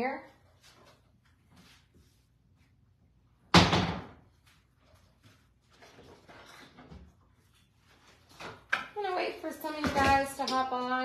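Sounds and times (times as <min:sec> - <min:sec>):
door slamming shut: 0:03.5 - 0:04.2.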